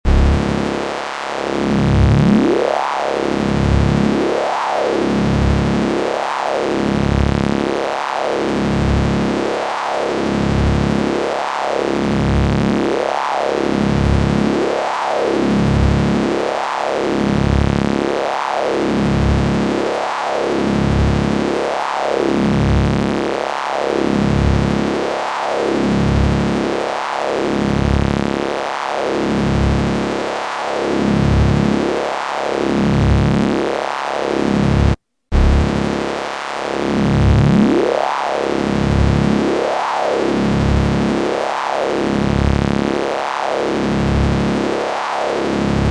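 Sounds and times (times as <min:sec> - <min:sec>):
synthesized electric buzz: 0:00.0 - 0:04.9, 0:33.1 - 0:45.9.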